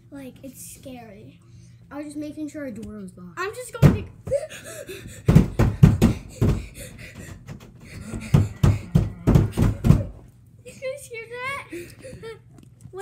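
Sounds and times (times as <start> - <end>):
heavy knocking on a door: 3.8 - 4.4, 5.0 - 10.2.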